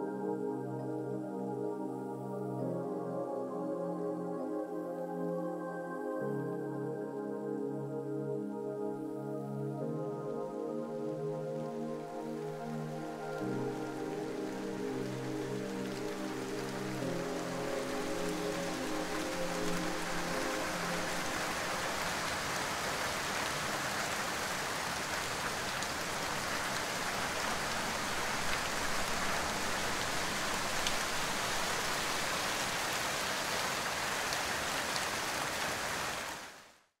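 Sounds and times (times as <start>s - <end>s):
background music: 0.0s - 22.6s
steady rain falling: 6.1s - 36.9s.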